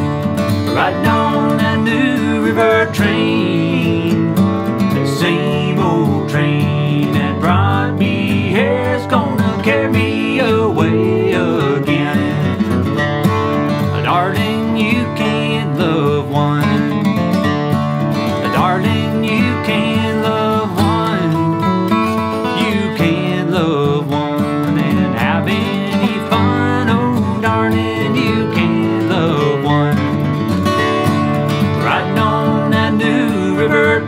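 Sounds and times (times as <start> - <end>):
acoustic guitars playing bluegrass: 0.0 - 34.0.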